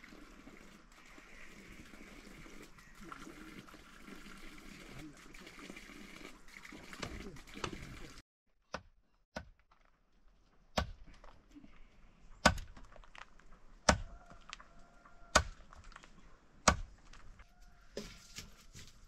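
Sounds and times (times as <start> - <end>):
blade chopping into wood: 10.7 - 11.2, 12.4 - 12.9, 15.3 - 15.7, 16.6 - 17.0.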